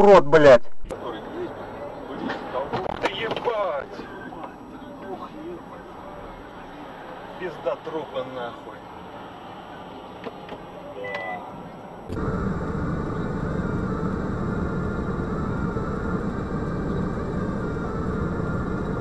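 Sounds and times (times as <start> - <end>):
car engine and cabin noise: 0.0 - 19.0
short high beep: 11.0 - 11.5.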